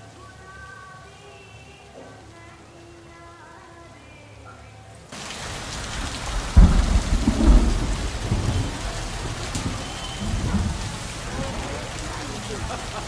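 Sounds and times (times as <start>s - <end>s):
steady rain: 0.0s - 13.0s
thunder rumble: 5.2s - 13.0s.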